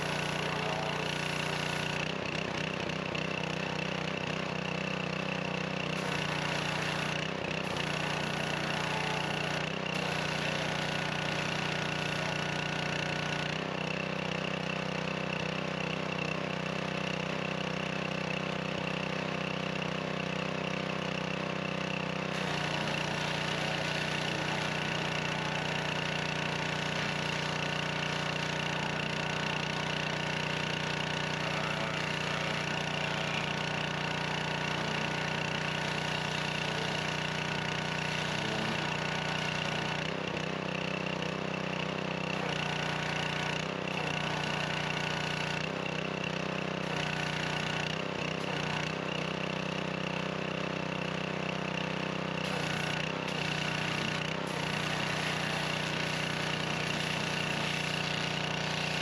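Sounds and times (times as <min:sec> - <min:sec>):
high-pressure water jet hissing: 0:00.0 - 0:02.0, 0:06.0 - 0:12.8, 0:22.3 - 0:40.0, 0:52.4 - 0:59.0
pressure washer engine running: 0:00.0 - 0:59.0.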